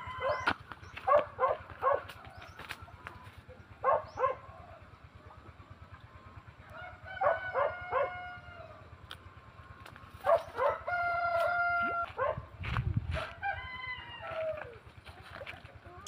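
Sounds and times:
roosters crowing: 0.0 - 5.0, 6.4 - 16.0.

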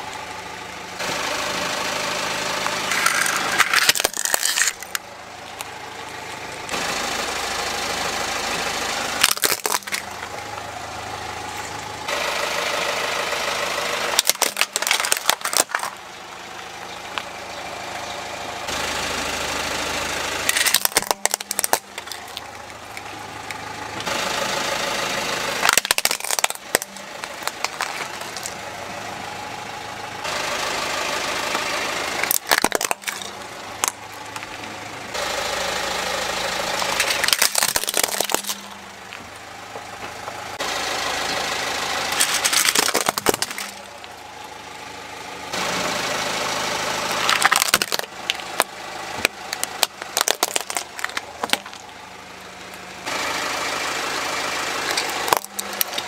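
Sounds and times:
car engine idling: 0.0 - 56.0
plastic toys cracking under tyre: 2.8 - 5.0, 9.2 - 10.3, 14.1 - 16.0, 20.5 - 23.6, 25.6 - 28.6, 32.2 - 34.6, 36.8 - 38.8, 42.2 - 44.1, 47.2 - 51.9, 54.8 - 56.0.

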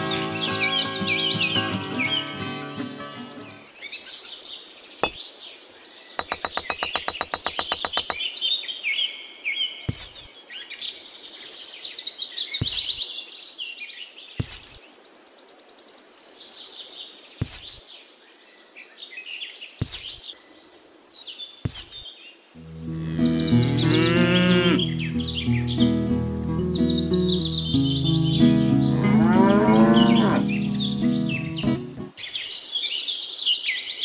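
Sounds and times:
birds chirping and twittering: 0.0 - 34.0
fast even rattle: 6.2 - 8.2
sharp taps: 6.2 - 8.2, 12.6 - 13.0.

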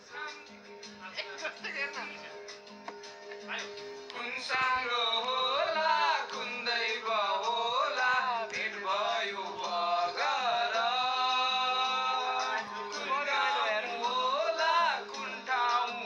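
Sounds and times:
man singing into microphone: 4.1 - 16.0.

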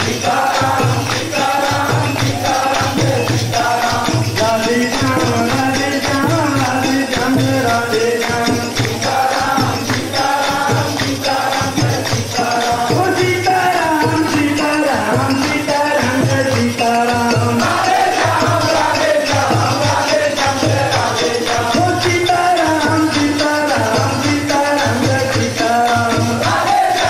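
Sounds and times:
hand-clapping: 0.0 - 13.3, 13.9 - 27.0
group singing a chant: 0.0 - 27.0
shaken percussion: 0.0 - 27.0.

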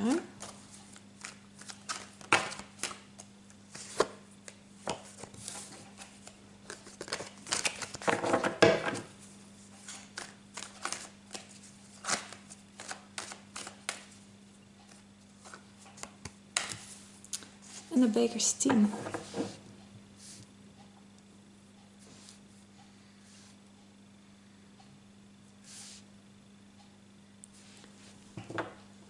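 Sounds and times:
faint hum: 0.0 - 29.0
cards being shuffled: 0.4 - 9.1, 9.8 - 14.2.

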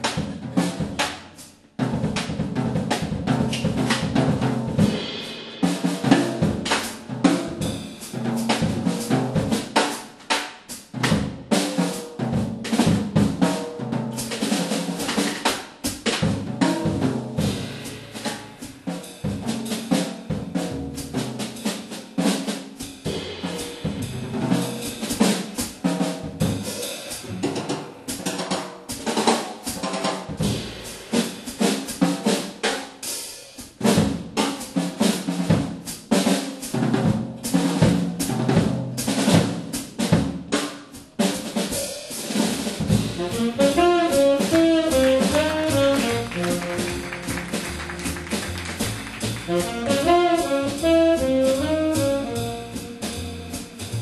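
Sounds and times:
snare drum strokes and rolls: 0.0 - 33.0, 33.6 - 54.0
bass drum hits: 42.8 - 54.0.

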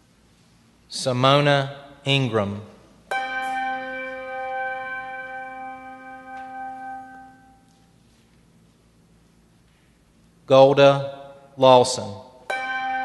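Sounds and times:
bell ringing: 3.1 - 7.7, 12.5 - 13.0.

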